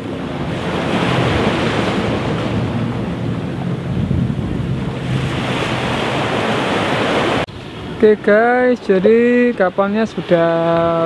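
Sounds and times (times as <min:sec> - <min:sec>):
wind buffeting microphone: 0:00.0 - 0:08.0
sea waves washing on beach: 0:00.0 - 0:11.0.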